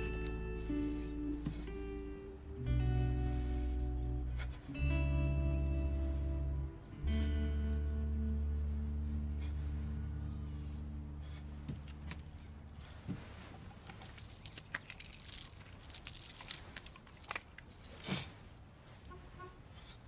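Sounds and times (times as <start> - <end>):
soft guitar music: 0.0 - 12.4.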